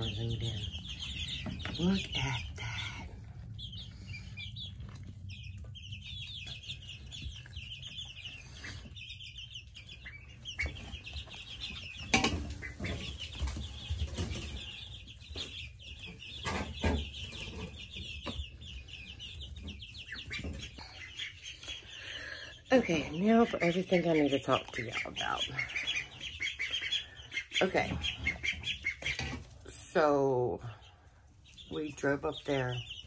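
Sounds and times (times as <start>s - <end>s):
chicks and ducklings peeping: 0.0s - 33.0s
sharp knocks and rustles: 10.6s - 18.5s.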